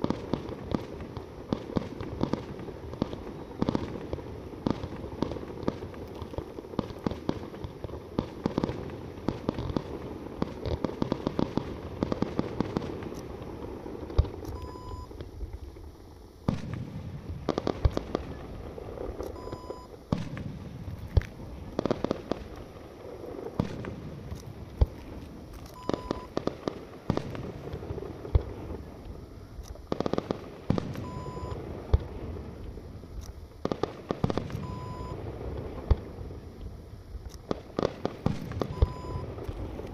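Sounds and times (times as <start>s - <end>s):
fireworks bangs and crackling: 0.0s - 39.9s
short high beep: 14.6s - 15.1s, 19.4s - 19.9s, 25.8s - 26.3s, 31.0s - 31.6s, 34.6s - 35.2s, 38.7s - 39.3s.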